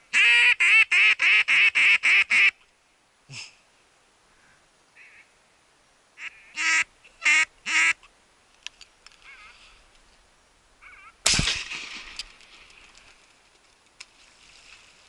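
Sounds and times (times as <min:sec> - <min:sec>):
duck quacks: 0:06.2 - 0:08.0
shotgun shot echoing: 0:11.2 - 0:12.4.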